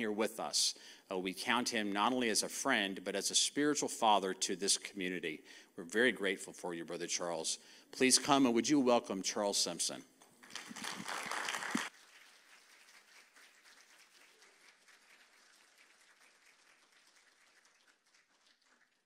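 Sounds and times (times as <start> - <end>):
crowd applauding: 10.4 - 19.0.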